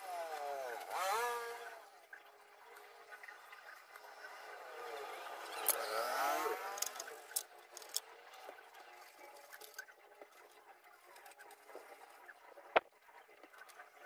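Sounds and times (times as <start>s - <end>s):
motor hum gliding in pitch: 0.0s - 7.3s.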